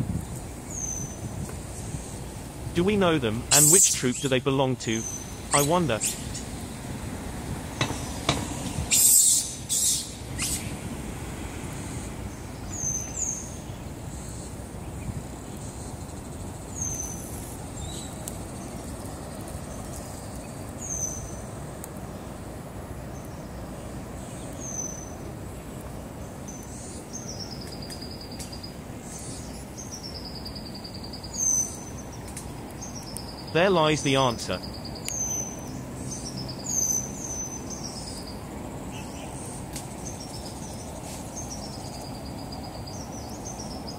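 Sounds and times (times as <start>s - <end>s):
steady background noise: 0.0s - 43.9s
bird chirping: 2.8s - 6.4s, 26.4s - 43.9s.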